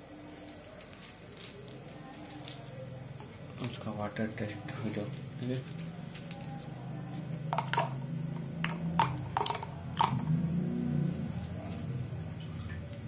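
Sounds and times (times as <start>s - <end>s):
nuts clicking into plastic jug: 7.5s - 8.0s, 8.6s - 10.3s.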